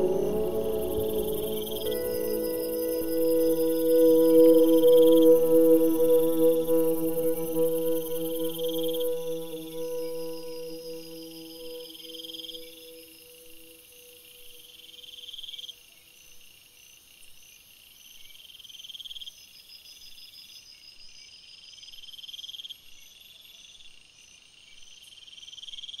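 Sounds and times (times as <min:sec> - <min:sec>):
rasping insect trill: 0:00.0 - 0:13.7.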